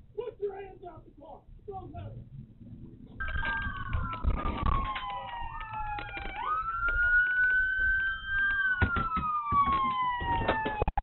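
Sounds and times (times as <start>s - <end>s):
police sirens wailing: 2.9s - 11.0s
scattered clicks: 3.1s - 11.0s.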